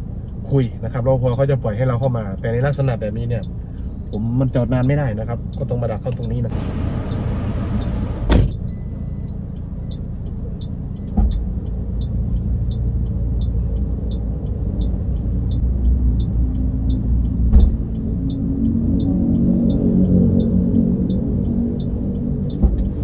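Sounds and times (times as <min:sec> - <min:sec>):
indicator ticking: 0:00.2 - 0:23.0
car engine running: 0:04.8 - 0:23.0
car door shutting: 0:06.5 - 0:08.7, 0:17.4 - 0:17.8
thump: 0:08.2 - 0:08.6, 0:17.5 - 0:17.8.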